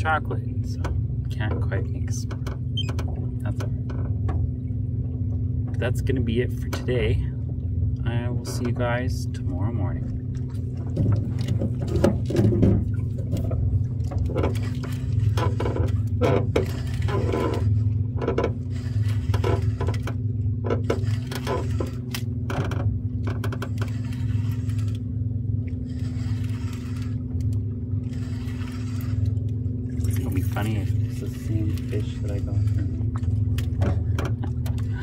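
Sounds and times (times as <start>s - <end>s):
boat motor running: 0.0s - 35.0s
knocks and rattles: 10.7s - 24.1s, 32.6s - 35.0s.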